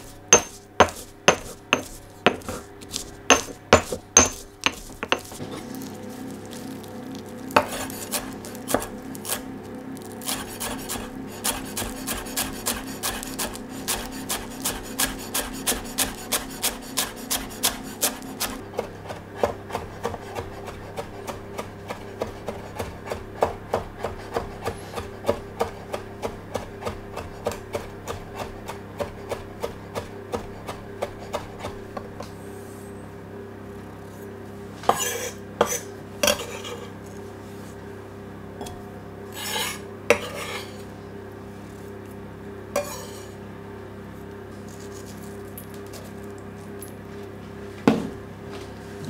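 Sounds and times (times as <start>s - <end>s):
knife chopping on wooden board: 0.0s - 5.4s, 7.6s - 9.4s, 10.3s - 32.3s.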